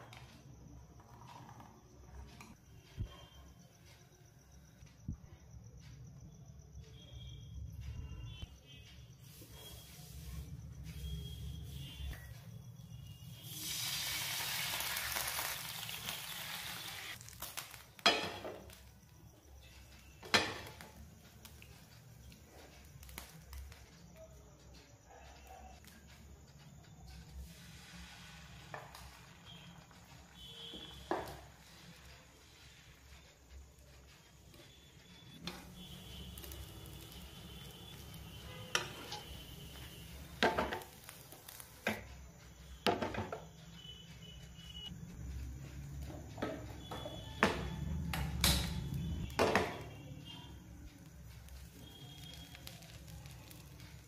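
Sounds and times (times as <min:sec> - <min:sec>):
water hissing on hot pan: 0:13.3 - 0:18.0, 0:27.4 - 0:33.2, 0:35.4 - 0:41.9, 0:51.4 - 0:54.0
metal pan clattering on burner: 0:18.0 - 0:18.6, 0:20.2 - 0:20.8, 0:40.4 - 0:40.9.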